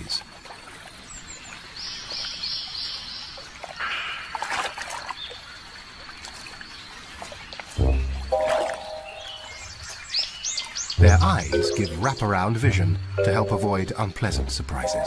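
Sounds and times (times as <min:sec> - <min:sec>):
shallow water splashing: 0:03.4 - 0:10.4
high chirps: 0:07.8 - 0:09.8, 0:11.0 - 0:14.0, 0:14.8 - 0:15.0.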